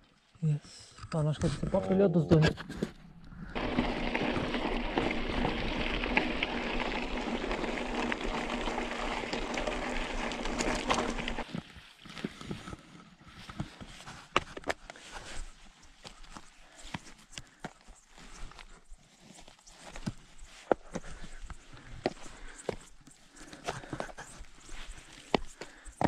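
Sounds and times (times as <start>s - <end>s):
bike rushing noise with hum: 3.4s - 11.5s.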